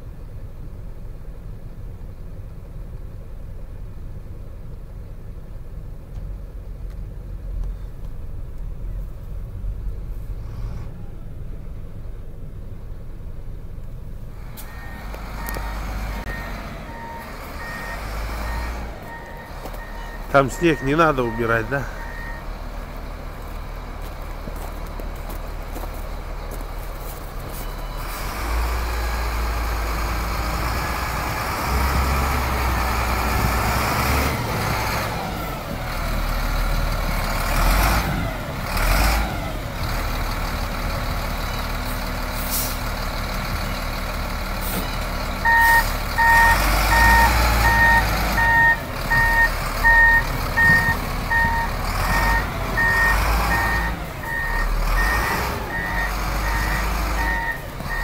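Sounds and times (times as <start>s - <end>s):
diesel engine running: 0.0s - 58.0s
reversing alarm beeping: 14.7s - 22.6s, 45.4s - 58.0s.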